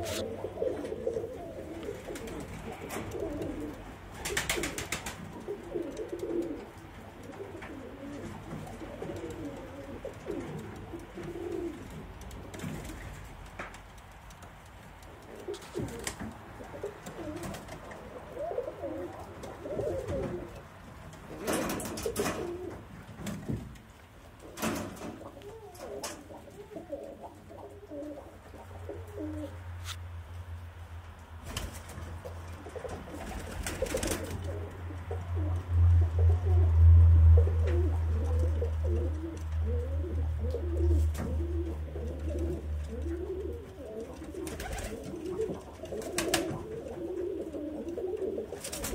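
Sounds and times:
pigeons cooing: 0:00.0 - 0:13.2, 0:15.1 - 0:22.9, 0:24.4 - 0:29.8, 0:32.1 - 0:48.9
low steady hum: 0:00.0 - 0:48.9.

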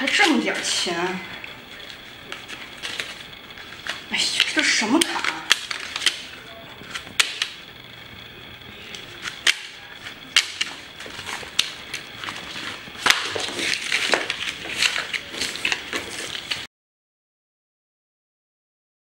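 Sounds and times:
wallet cards and banknotes rustling: 0:00.0 - 0:16.7.

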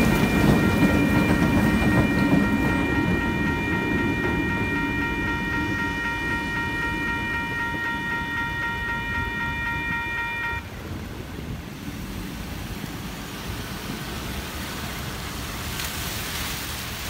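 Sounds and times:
level-crossing bell ringing: 0:00.0 - 0:10.6
rain hissing on wet road: 0:11.1 - 0:17.0.

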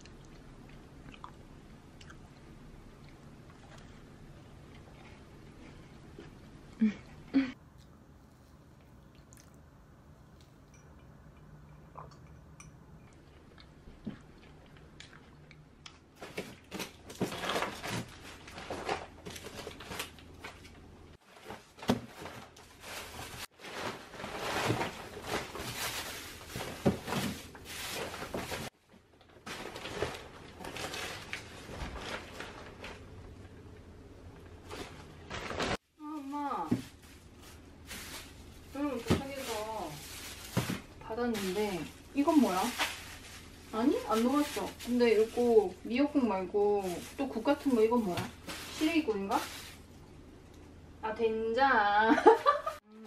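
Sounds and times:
plastic and paper crinkling: 0:16.2 - 0:33.5, 0:34.6 - 0:50.0.

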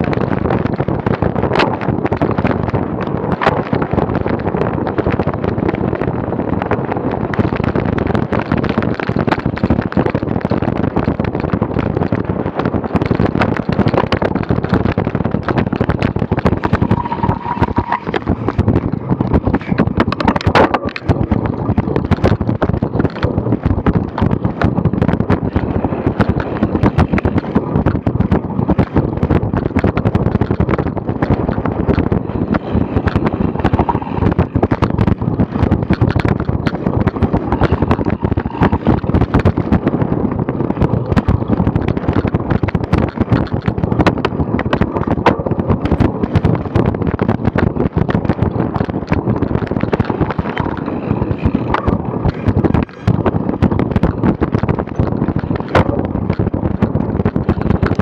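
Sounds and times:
bike rattling over rough ground: 0:00.0 - 0:58.0
wind buffeting microphone: 0:00.0 - 0:58.0.

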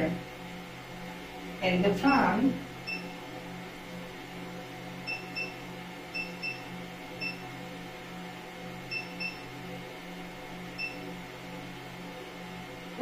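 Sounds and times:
steady low hum: 0:00.0 - 0:13.0
high-pitched electronic beeps: 0:02.8 - 0:03.1, 0:05.0 - 0:07.4, 0:08.9 - 0:09.4, 0:10.7 - 0:11.0.

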